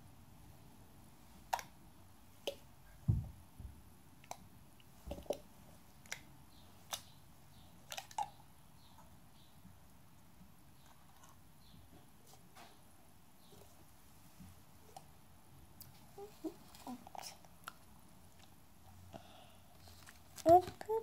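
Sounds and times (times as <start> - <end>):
dull low thump: 3.1 - 3.8.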